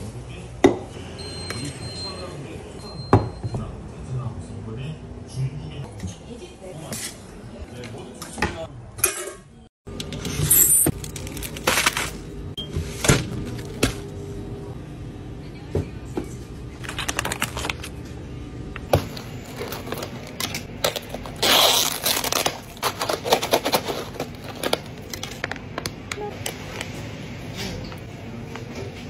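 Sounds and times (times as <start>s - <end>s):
plastic packaging rustling and tearing: 10.9s - 12.3s, 16.8s - 18.0s, 19.0s - 25.6s.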